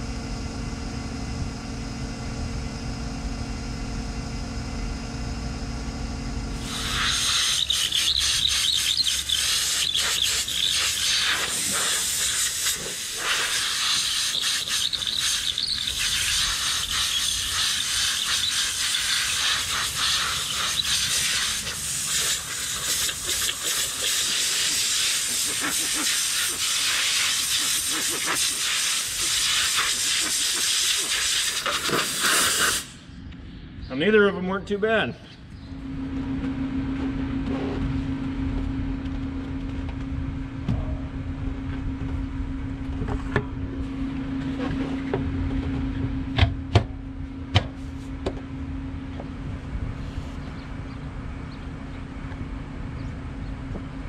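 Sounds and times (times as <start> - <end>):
compressed air hissing: 6.6 - 33.1.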